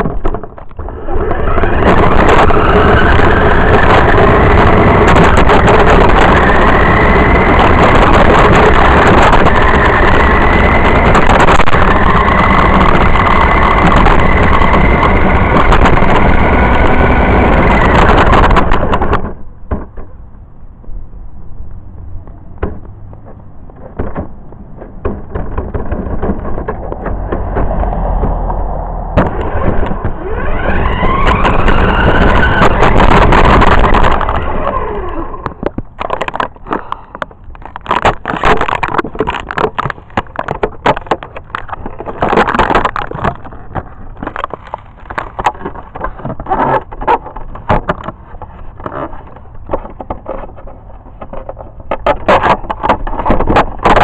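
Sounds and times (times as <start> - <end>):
car rattling over concrete: 0.0 - 20.2, 22.6 - 54.0
toy car motor whirring: 0.8 - 19.1, 29.3 - 35.6.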